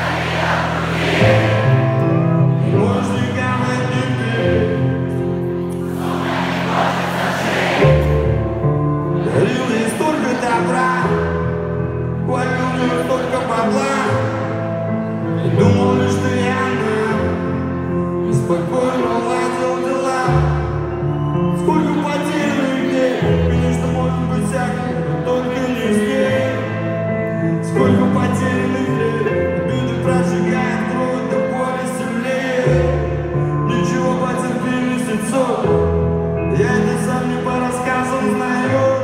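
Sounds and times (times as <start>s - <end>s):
keyboard chords: 0.0s - 39.0s
person singing: 9.1s - 11.3s.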